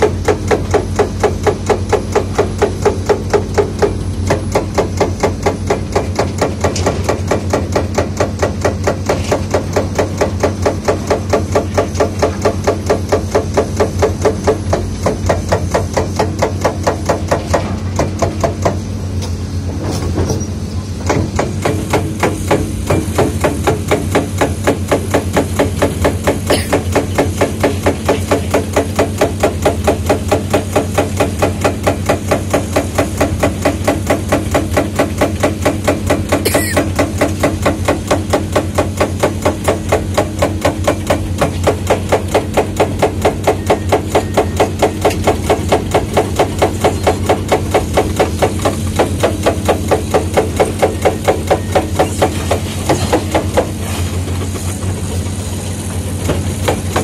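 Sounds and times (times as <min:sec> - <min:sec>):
mechanical hammer blows: 0:21.1 - 0:27.3, 0:36.4 - 0:37.1
engine drone: 0:36.1 - 0:37.4.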